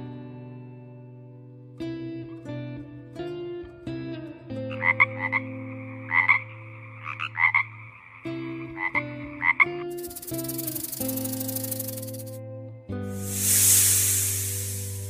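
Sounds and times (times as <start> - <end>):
acoustic guitar music: 0.0 - 13.4
frog croaking: 4.7 - 12.4
snake hissing: 9.9 - 12.4, 13.1 - 15.0.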